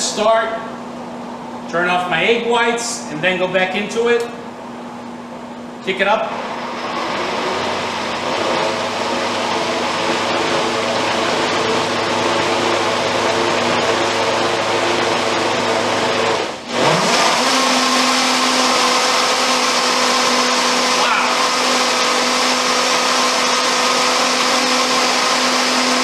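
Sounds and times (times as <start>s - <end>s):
blender running at high speed: 6.2s - 26.0s.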